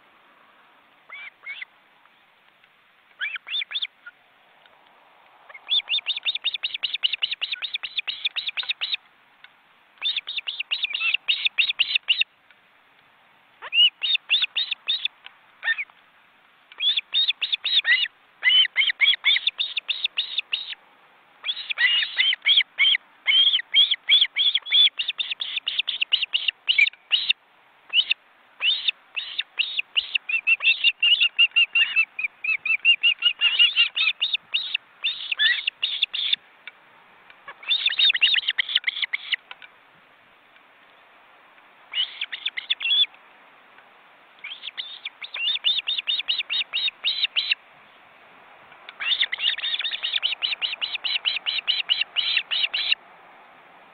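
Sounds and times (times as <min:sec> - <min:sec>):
ospreys chirping: 0:03.2 - 0:03.9, 0:05.5 - 0:09.0, 0:27.9 - 0:36.4, 0:37.5 - 0:39.4, 0:41.9 - 0:43.1, 0:44.4 - 0:47.6, 0:48.9 - 0:53.0.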